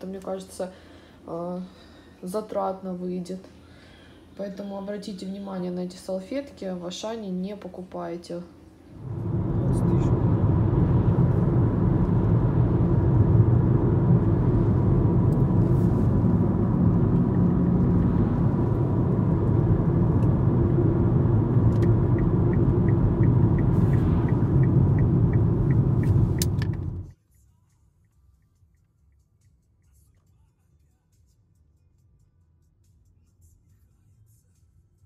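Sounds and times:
car cabin road and engine rumble: 8.9s - 27.1s
turn signal ticking: 16.3s - 27.1s.

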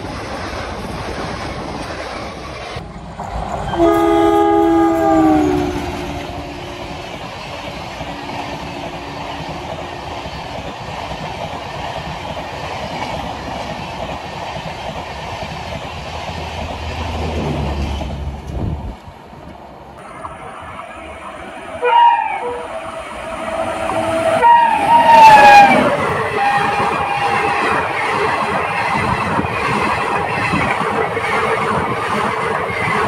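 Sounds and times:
train coaches rushing on rails: 0.0s - 33.0s
locomotive horn: 3.7s - 10.2s, 20.0s - 27.8s.

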